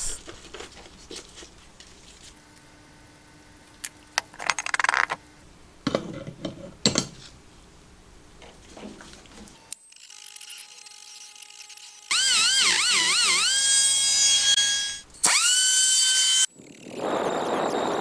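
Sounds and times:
handling rustle: 0.0s - 2.4s
metal parts clinking and knocking: 4.2s - 5.2s.

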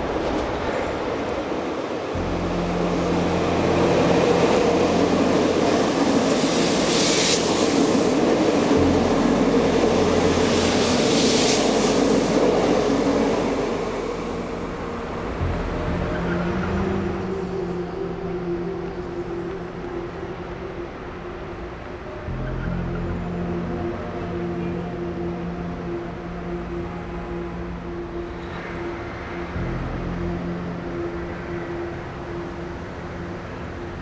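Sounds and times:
train rumbling on rails: 0.0s - 34.0s
hissy rushes: 6.4s - 8.3s, 10.4s - 14.4s.

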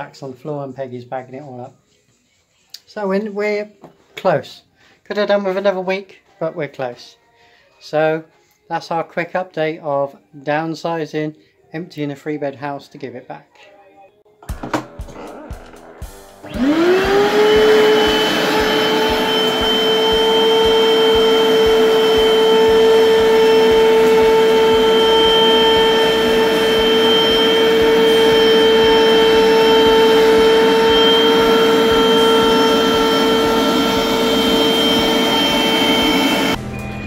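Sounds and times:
vacuum cleaner motor whining: 15.0s - 36.6s.

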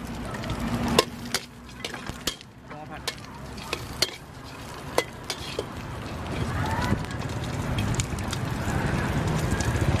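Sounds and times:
meat sizzling: 0.0s - 10.0s
metal spatula scraping a wok: 3.0s - 5.7s.

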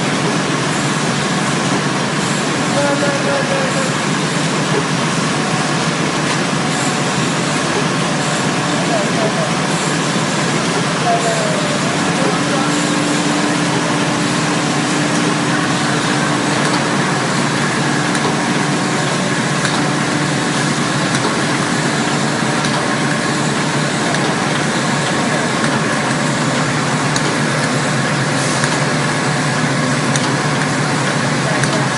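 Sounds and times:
machine hum: 0.0s - 31.9s
machinery running: 0.0s - 31.9s.

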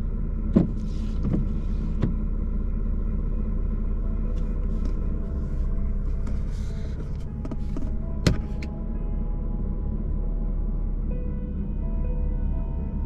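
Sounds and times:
car cabin low rumble: 0.0s - 13.0s.

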